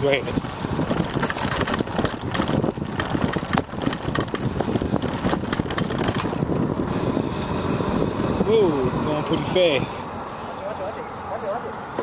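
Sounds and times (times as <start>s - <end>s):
knocks and rattles over bumpy grass: 0.0s - 6.7s
wind buffeting microphone: 0.0s - 10.3s.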